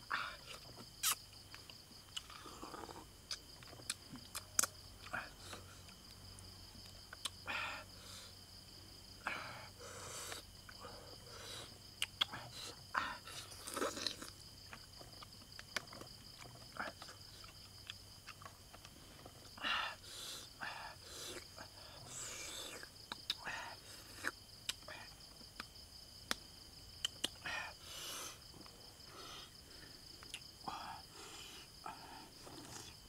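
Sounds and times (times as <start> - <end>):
insects trilling: 0.0 - 33.0
chewing and sucking: 0.5 - 6.0, 10.2 - 19.4, 21.1 - 24.8, 31.2 - 33.0.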